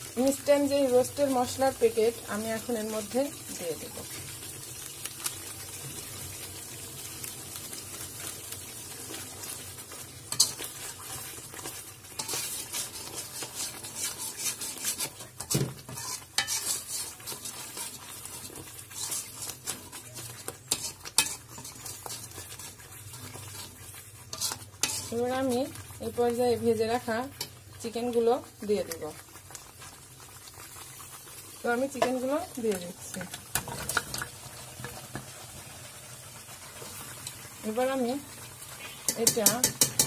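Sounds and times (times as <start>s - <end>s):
spice paste sizzling in a pan: 0.0s - 40.0s
wire skimmer scraping a pan: 10.3s - 25.8s.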